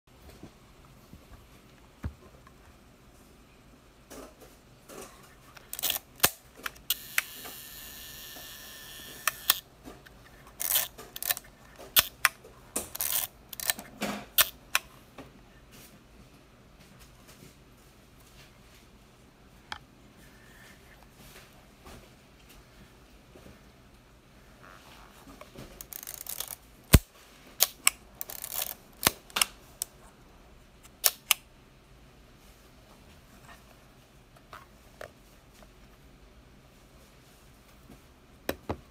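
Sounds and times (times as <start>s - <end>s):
camera film advance ratcheting: 5.7s - 6.0s, 6.9s - 9.6s, 10.6s - 11.4s, 13.0s - 13.8s, 25.8s - 26.6s, 28.2s - 28.8s
camera motor whirring: 6.9s - 9.6s.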